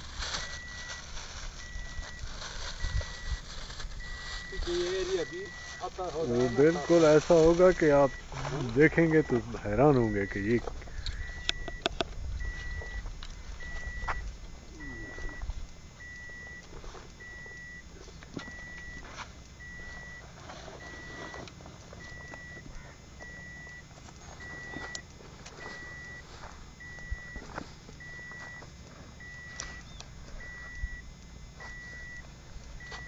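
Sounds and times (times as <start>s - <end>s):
clothing and gear rustling: 0.0s - 8.9s
steady low rumble: 0.0s - 33.0s
car warning beeper: 0.3s - 33.0s.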